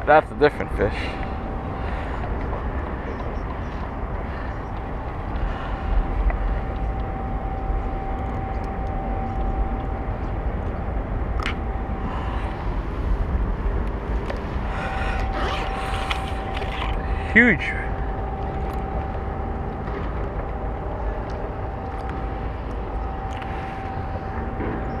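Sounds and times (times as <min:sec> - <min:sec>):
heavy low rumble: 0:00.0 - 0:25.0.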